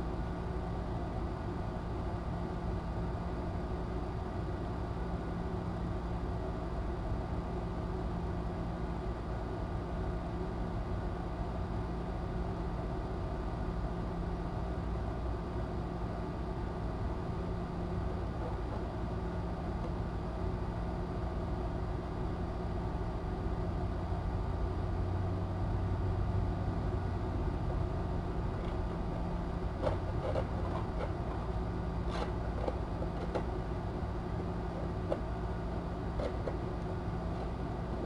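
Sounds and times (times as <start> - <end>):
room noise hum and hiss: 0.0 - 38.0
kitten pawing at cardboard: 29.7 - 33.6, 36.1 - 37.7.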